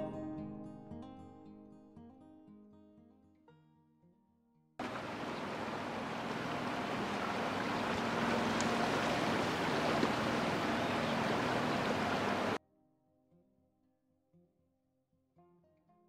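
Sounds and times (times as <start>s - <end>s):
river water rushing: 4.8s - 12.6s.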